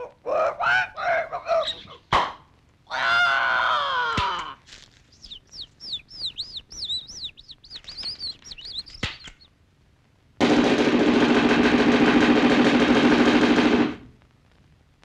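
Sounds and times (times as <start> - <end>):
high whistled chirps: 5.1 - 9.5
drum roll: 10.4 - 14.1.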